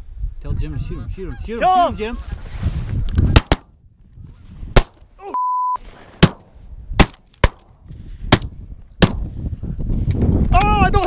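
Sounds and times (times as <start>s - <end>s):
short steady beep: 5.3s - 5.8s
shotgun blasts: 6.2s - 7.7s.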